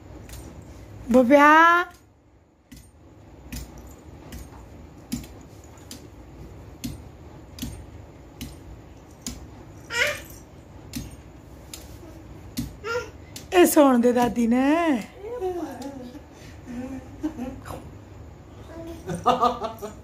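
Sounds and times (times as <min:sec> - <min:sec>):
toddler calling: 0:09.9 - 0:10.4, 0:12.8 - 0:13.2.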